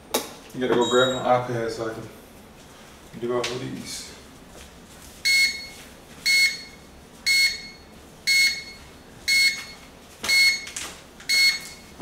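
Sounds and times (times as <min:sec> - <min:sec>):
timer alarm beeping: 0:00.8 - 0:01.3, 0:05.3 - 0:10.7, 0:11.3 - 0:11.8.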